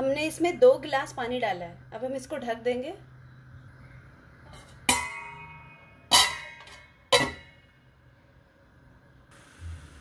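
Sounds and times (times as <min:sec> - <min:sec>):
metal lid clinking on pan: 0:04.9 - 0:07.6.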